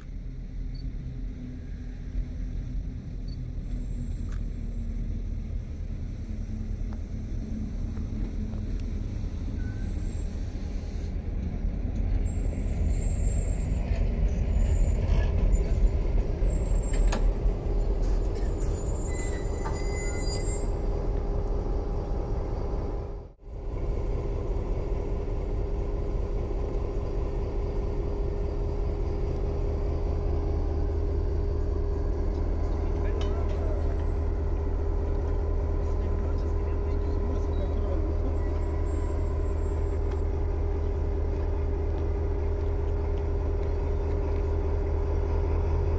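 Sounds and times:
locomotive low rumble: 0.0 - 45.9
high metallic squeals: 16.5 - 20.8.

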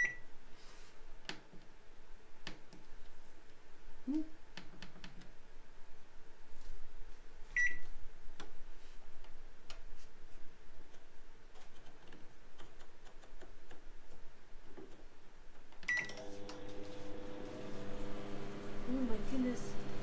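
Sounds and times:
microwave beeping: 0.0 - 0.2, 7.6 - 7.8, 15.9 - 17.5
microwave humming: 15.9 - 20.0.

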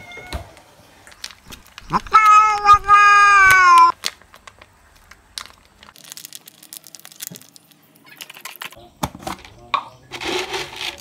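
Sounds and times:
foil pouch crinkling: 1.1 - 8.7
cat meowing: 1.8 - 3.9.

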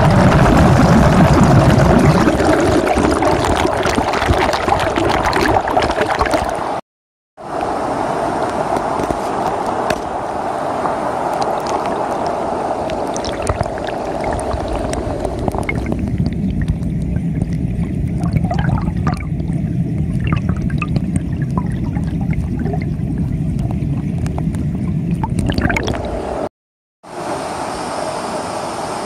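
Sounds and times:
bubbles popping underwater: 0.0 - 6.7, 11.4 - 12.3, 12.9 - 26.2
muffled underwater current rumble: 0.0 - 6.8, 11.3 - 26.5
stream rushing over rocks: 7.4 - 16.0.

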